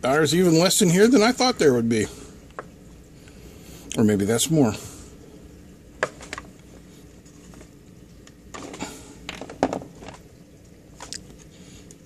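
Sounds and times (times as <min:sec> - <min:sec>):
plastic clicks and knocks: 0:08.3 - 0:10.2.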